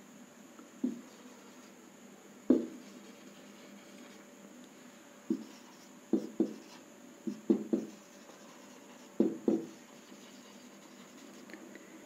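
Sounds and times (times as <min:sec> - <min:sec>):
marker pen writing on whiteboard: 0:02.5 - 0:04.2, 0:05.3 - 0:11.6.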